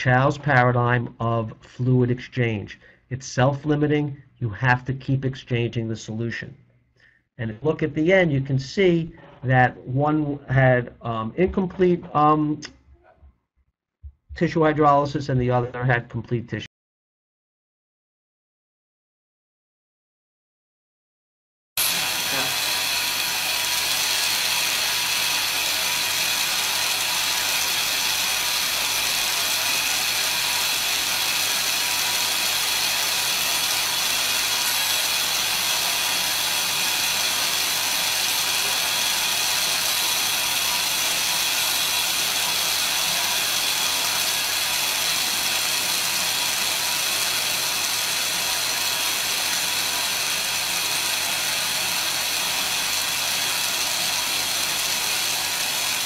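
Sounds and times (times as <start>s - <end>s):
dental handpiece whining: 21.8s - 56.0s.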